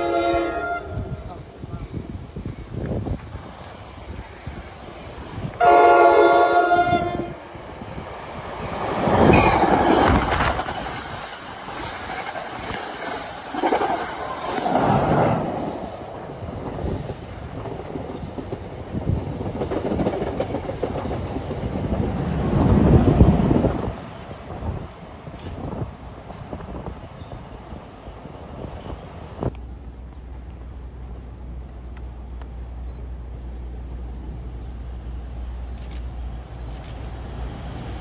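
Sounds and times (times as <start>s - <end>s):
train horn blast: 0.0s - 1.4s, 5.6s - 7.4s.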